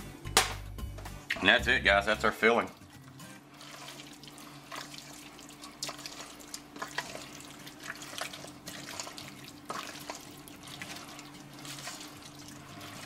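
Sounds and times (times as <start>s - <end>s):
wet stirring: 2.4s - 13.0s.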